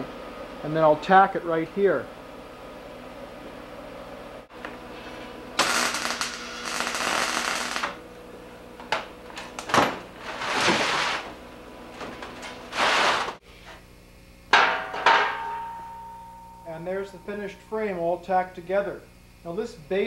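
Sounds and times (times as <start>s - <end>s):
arc welder crackling hiss: 4.6s - 8.0s.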